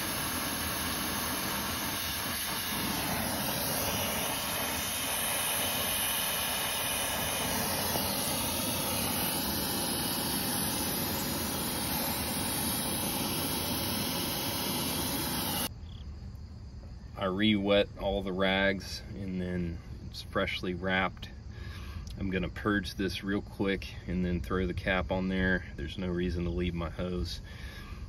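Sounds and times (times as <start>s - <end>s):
brazing torch flame roaring: 0.0s - 15.7s.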